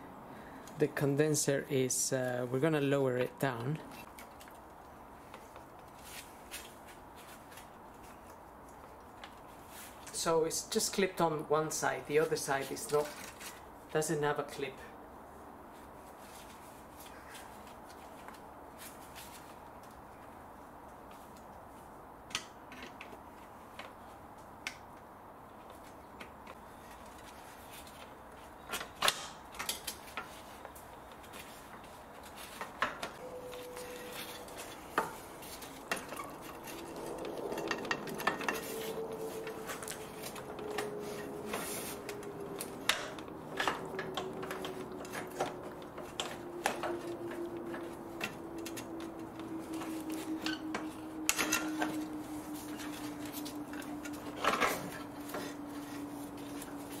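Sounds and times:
metallic clatter of handled parts: 32.6s - 57.0s
faint hum falling in pitch: 33.2s - 57.0s.

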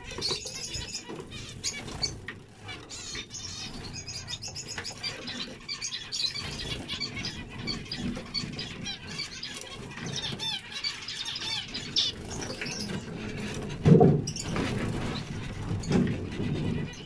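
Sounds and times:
finches chirping: 0.0s - 17.0s.

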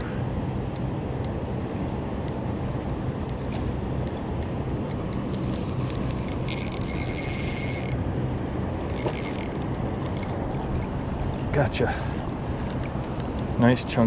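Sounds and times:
low hum: 0.0s - 13.8s
spinning reel whirring: 5.4s - 8.0s, 8.8s - 11.0s.

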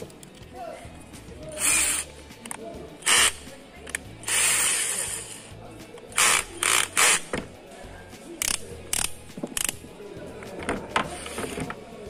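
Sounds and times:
background music: 0.0s - 12.0s
drill chuck ratcheting: 1.6s - 5.4s, 6.1s - 7.4s, 8.4s - 9.8s.

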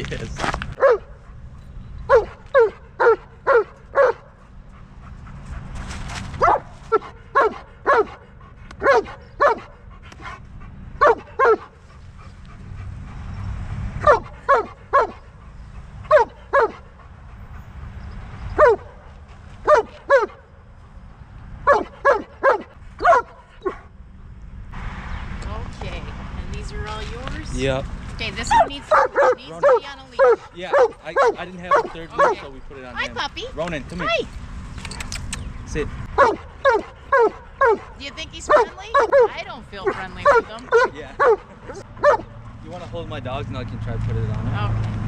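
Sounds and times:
dog barking: 0.8s - 1.2s, 2.1s - 4.4s, 6.4s - 10.4s, 11.0s - 11.8s, 14.0s - 15.3s, 16.1s - 16.9s, 18.5s - 20.5s, 21.6s - 23.9s, 28.4s - 32.5s, 36.1s - 42.4s.

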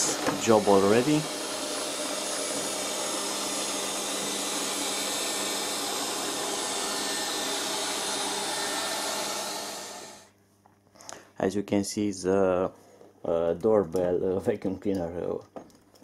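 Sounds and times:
robot vacuum cleaner whirring: 0.0s - 10.3s.

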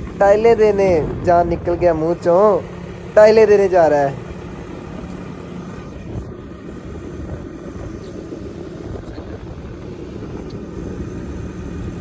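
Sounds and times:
wind rushing: 0.0s - 5.0s
motorcycle engine running: 0.0s - 12.0s
road noise: 0.0s - 12.0s.

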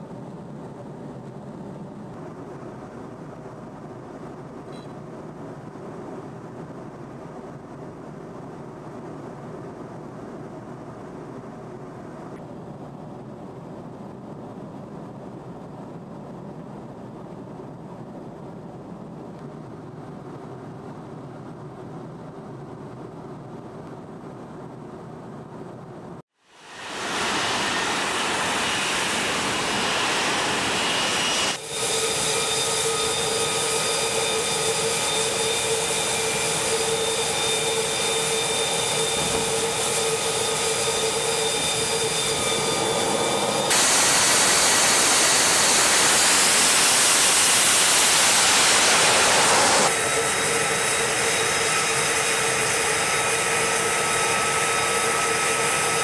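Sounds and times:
jet engine roaring with whine: 0.0s - 56.0s.

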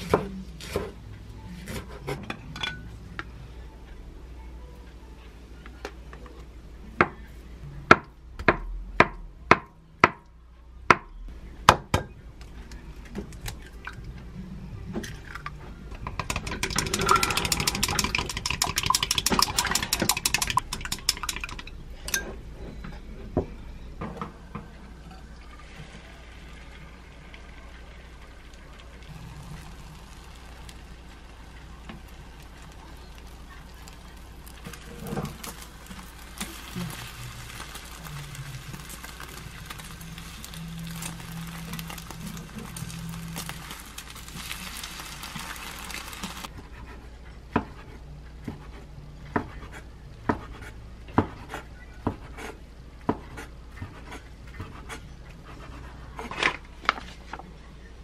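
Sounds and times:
chopsticks beating egg in glass: 16.2s - 21.7s
egg sizzling in a pan: 16.2s - 21.7s, 25.6s - 46.5s.

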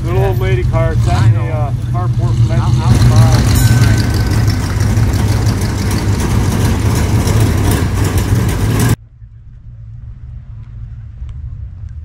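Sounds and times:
car engine idling: 0.0s - 9.0s.

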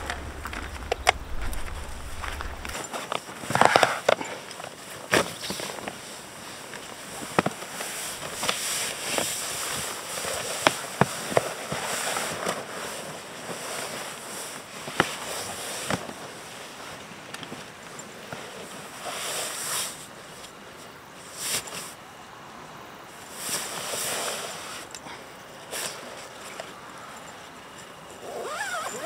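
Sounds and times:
sharp clicks and knocks: 0.0s - 2.8s
steady hiss: 0.0s - 2.9s, 5.4s - 28.2s.

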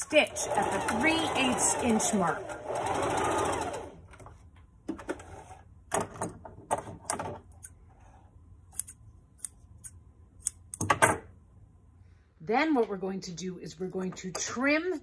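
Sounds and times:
electric sewing machine stitching: 0.0s - 4.1s
scissors snipping threads: 8.7s - 10.8s.

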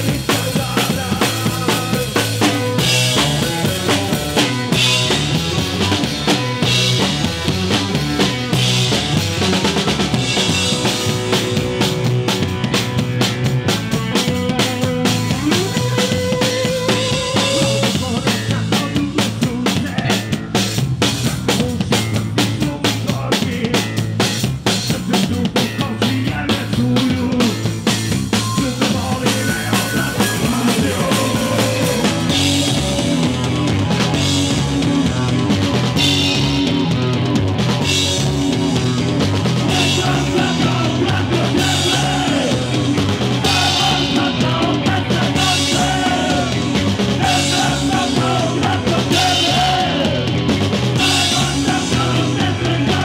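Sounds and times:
man singing: 0.0s - 4.8s, 13.8s - 32.8s, 39.6s - 50.4s, 51.0s - 53.0s
punk rock band playing: 0.0s - 53.0s.

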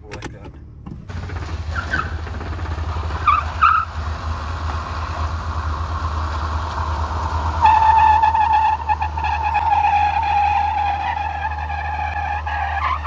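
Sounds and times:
car engine low rumble: 0.0s - 13.0s
high-pitched squeal: 4.6s - 13.0s.

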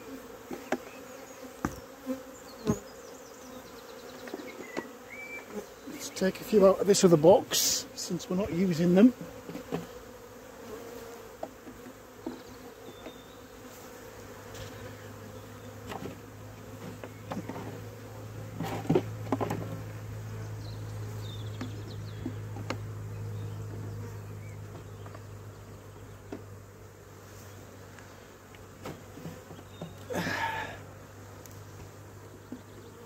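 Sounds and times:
honeybees buzzing: 0.0s - 33.0s
knocks of wooden hive parts: 1.6s - 1.9s, 9.4s - 9.9s, 15.8s - 17.8s, 18.6s - 19.8s.

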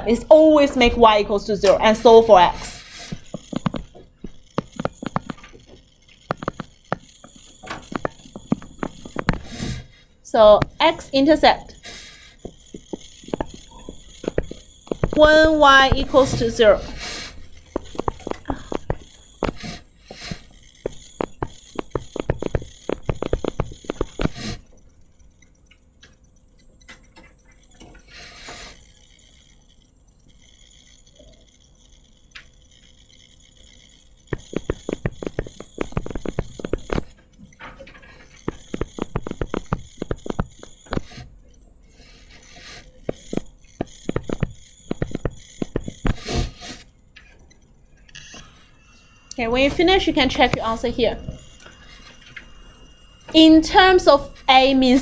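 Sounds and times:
stylus tapping on touchscreen: 43.1s - 46.2s.

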